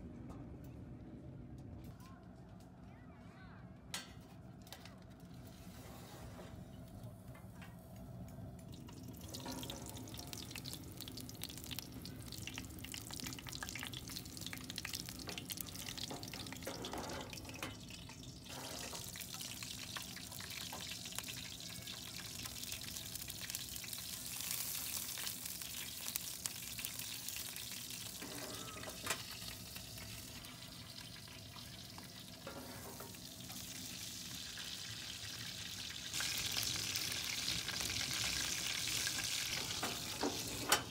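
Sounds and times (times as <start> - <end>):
meat sizzling and crackling: 9.2 - 40.9.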